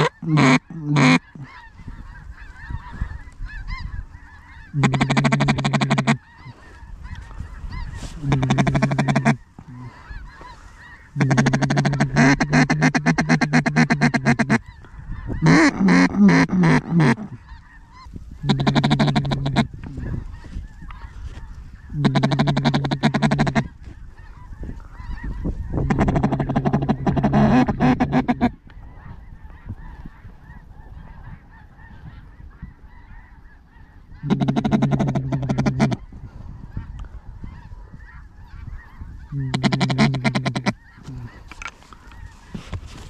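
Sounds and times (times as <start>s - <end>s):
faint calling: 0.0s - 42.7s
raspy goose-like honking: 0.0s - 43.0s.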